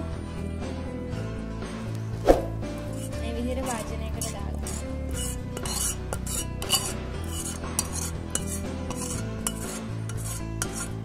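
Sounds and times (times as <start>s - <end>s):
quiet background music: 0.0s - 11.0s
spoon clinking against ceramic bowl: 3.7s - 10.9s.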